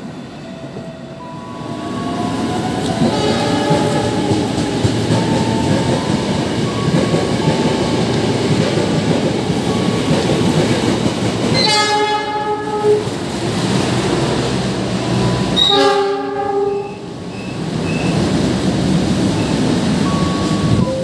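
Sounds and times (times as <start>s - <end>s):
train rumble and wheel clatter: 0.0s - 21.0s
locomotive horn blasts: 3.1s - 4.0s, 11.6s - 13.0s, 15.6s - 17.0s.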